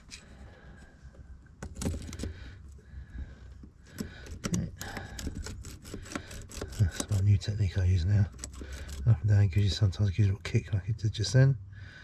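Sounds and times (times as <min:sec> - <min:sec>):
lock pick clicking in lock cylinder: 0:01.6 - 0:02.4, 0:03.8 - 0:07.4, 0:08.3 - 0:09.8.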